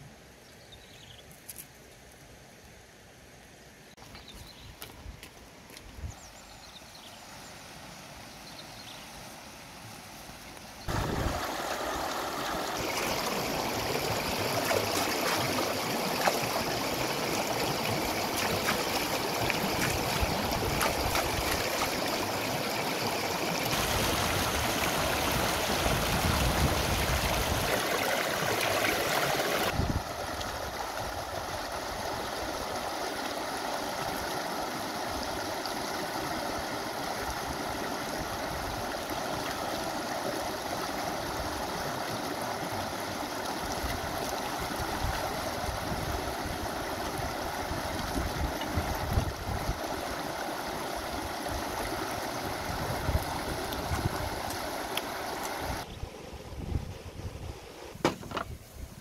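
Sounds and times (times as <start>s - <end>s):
river rushing over rocks: 10.8s - 55.8s.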